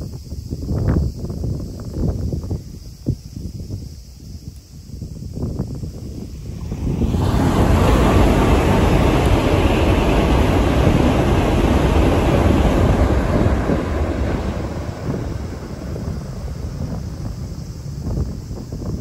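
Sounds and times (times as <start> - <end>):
train passing over bridge: 6.3 - 18.6.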